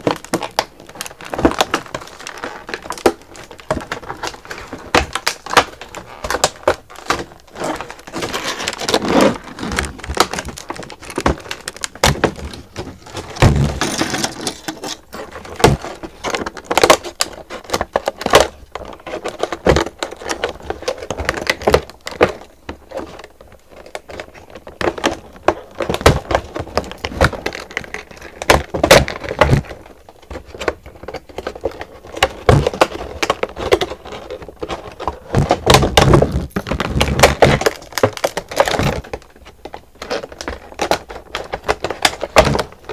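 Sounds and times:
plastic packaging crinkling: 0.0 - 42.9
rustling: 0.0 - 42.9
scissors cutting plastic: 30.4 - 42.9.

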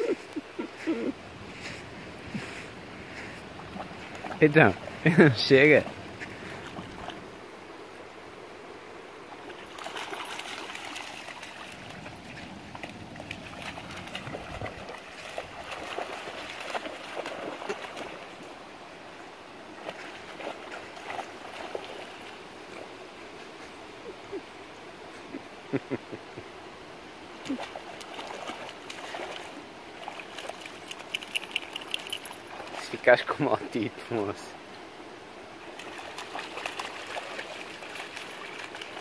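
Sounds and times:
puppy splashing in water: 3.5 - 5.1, 9.4 - 18.5, 19.8 - 22.4, 27.4 - 33.0, 35.6 - 39.0
trickling water: 9.4 - 18.3, 27.5 - 33.3, 35.8 - 39.0.

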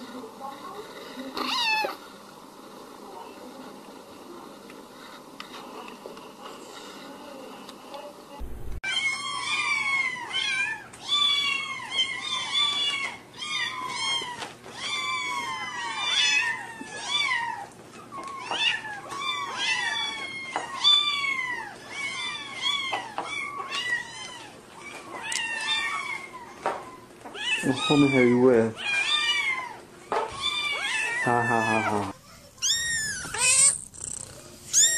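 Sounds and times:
kittens meowing: 8.9 - 34.9.

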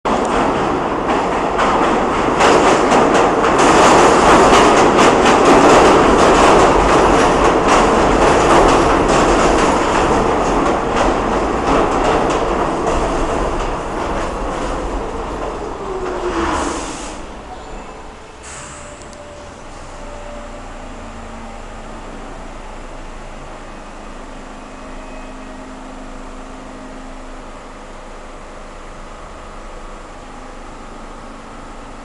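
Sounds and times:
wheels clicking over rail joints: 0.1 - 16.5
subway train rail rumble: 0.1 - 32.0.

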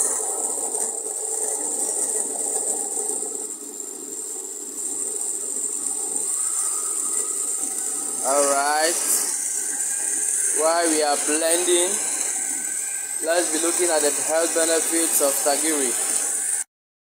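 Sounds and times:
blender running: 5.7 - 16.7.

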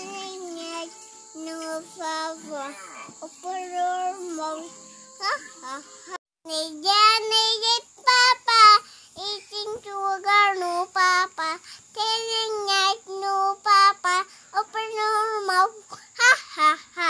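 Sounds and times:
toddler girl singing: 0.0 - 17.0.

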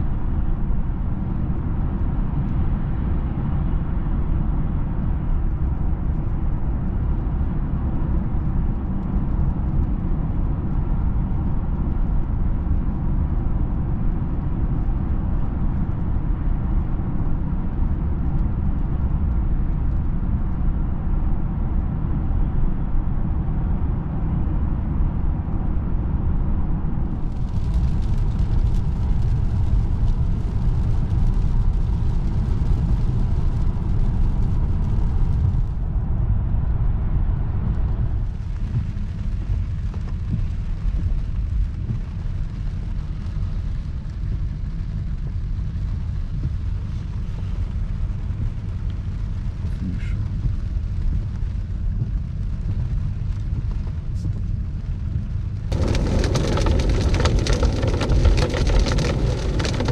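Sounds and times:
road and drivetrain rumble in car: 0.0 - 59.9
rain hissing on car: 27.1 - 35.9, 37.7 - 59.9.

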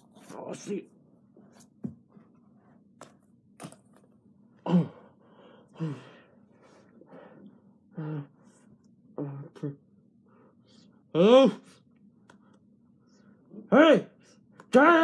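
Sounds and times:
person groaning: 4.7 - 5.1, 5.8 - 6.2, 7.9 - 8.4.

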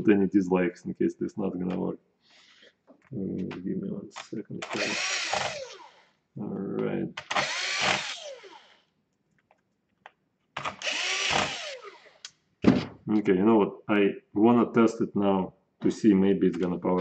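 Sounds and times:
cordless drill whining: 4.6 - 6.1, 7.2 - 8.8, 10.6 - 12.3.

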